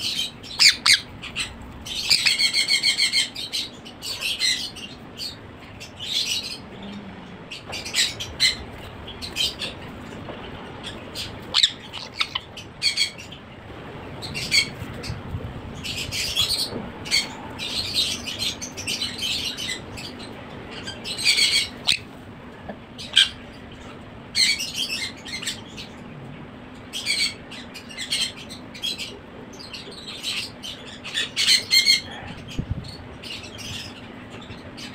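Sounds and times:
parrot chick squawking: 0.0 - 5.4, 10.8 - 13.4, 20.8 - 22.1.

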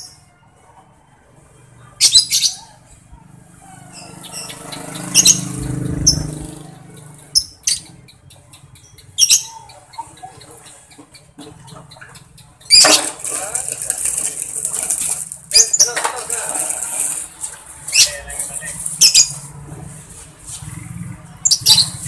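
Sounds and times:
lovebird shrill calls: 3.9 - 6.3, 7.1 - 10.1, 18.8 - 19.4.

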